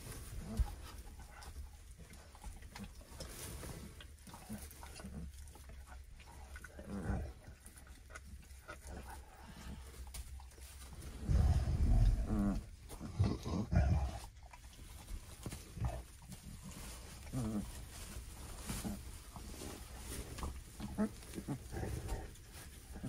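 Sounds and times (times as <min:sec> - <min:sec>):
puppies growling and grunting: 0:06.2 - 0:10.0, 0:10.9 - 0:23.0.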